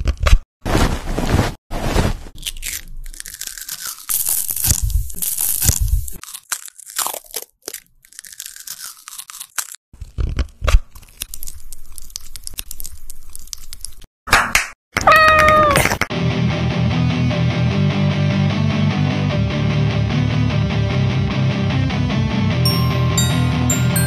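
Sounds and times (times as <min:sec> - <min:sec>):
mandarin being skewered: 0:02.3 - 0:09.8.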